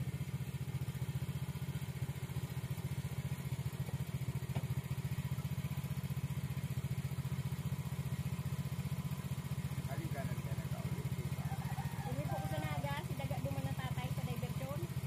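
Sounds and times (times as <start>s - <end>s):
small engine running: 0.0s - 15.0s.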